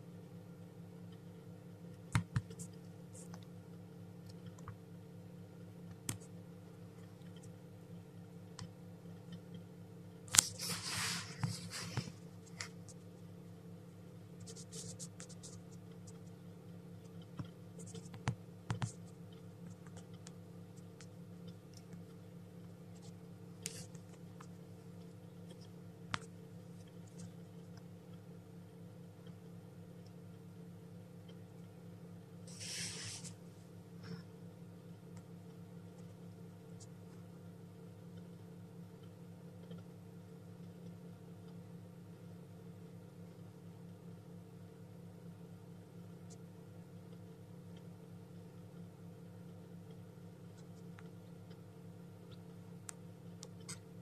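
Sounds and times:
incubator hum: 0.0s - 54.0s
faint clicks and taps: 1.9s - 3.6s, 4.2s - 4.8s, 5.8s - 7.6s, 8.5s - 10.6s, 14.4s - 28.3s, 39.0s - 39.9s, 49.5s - 51.6s
scratchy rustle: 10.4s - 12.8s, 32.5s - 33.4s.

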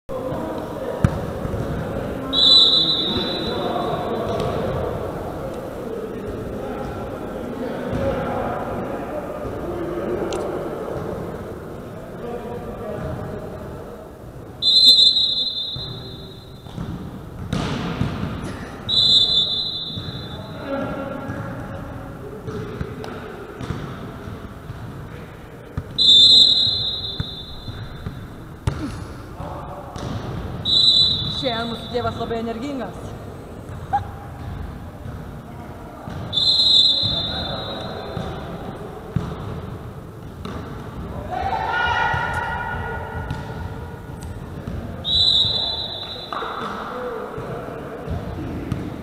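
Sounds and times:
ball and court sounds: 0.1s - 5.5s, 6.1s - 8.6s, 14.6s - 49.0s
murmur of voices: 0.1s - 16.6s, 18.3s - 49.0s
referee's whistle blasts: 2.3s - 4.1s, 14.6s - 16.7s, 18.9s - 20.6s, 26.0s - 28.0s, 30.6s - 32.3s, 36.3s - 38.4s, 45.0s - 46.7s.

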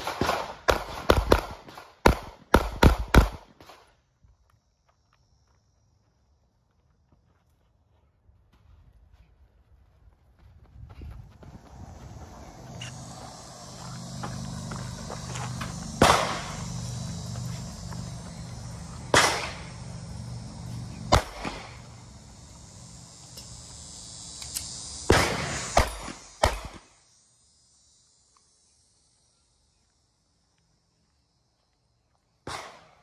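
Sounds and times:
low steady hum: 8.1s - 32.4s.

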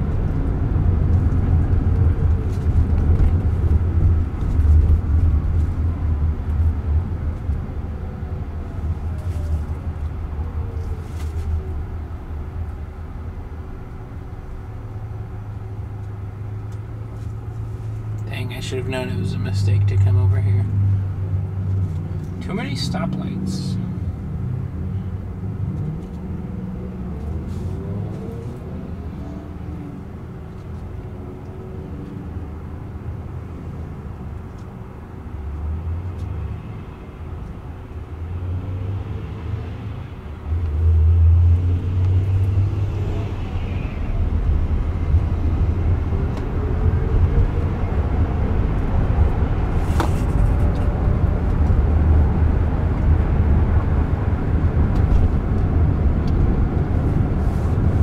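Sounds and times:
road and tyre noise: 0.0s - 58.0s
traffic passing: 0.0s - 58.0s
low cabin rumble: 42.8s - 58.0s.

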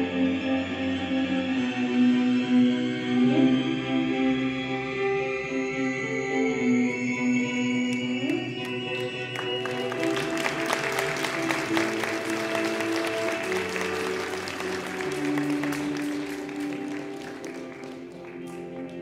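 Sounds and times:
music with long held notes: 0.0s - 19.0s
audience applauding: 8.2s - 19.0s.

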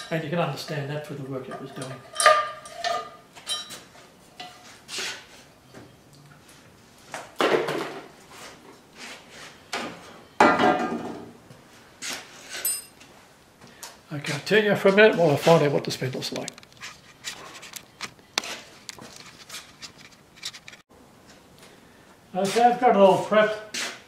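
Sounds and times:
metal parts and tools clanking: 1.4s - 4.7s, 12.4s - 13.0s.

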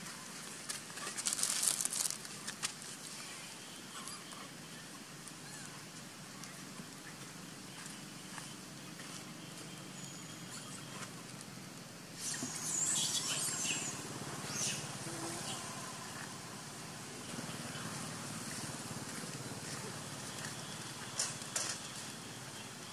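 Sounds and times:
steady low hum: 2.2s - 22.9s
high-pitched chirping calls: 12.2s - 16.3s.

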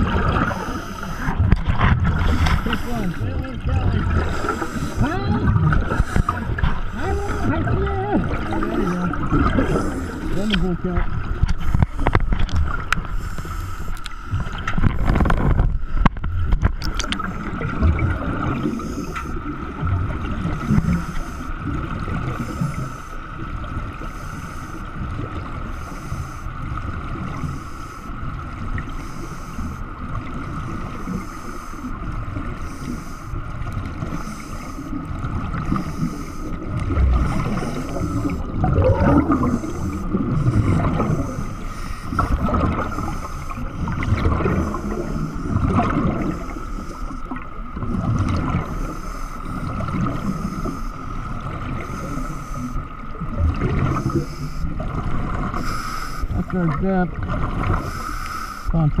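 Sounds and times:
diver's exhaust bubbles: 0.0s - 13.1s, 33.6s - 46.6s
underwater churning rumble: 0.0s - 59.0s.

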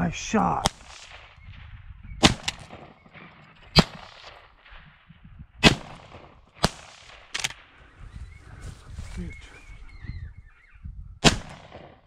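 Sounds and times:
shotgun firing: 0.6s - 1.6s, 2.2s - 7.7s, 11.2s - 12.0s.

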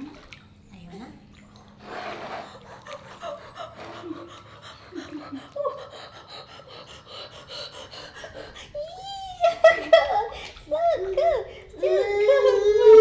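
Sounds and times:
pool water splashing: 0.0s - 13.0s
gasps and breathy voice sounds: 2.4s - 9.4s.

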